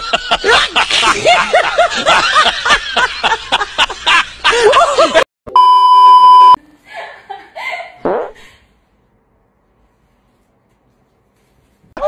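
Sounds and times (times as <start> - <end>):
high censor bleep: 5.5 - 6.6.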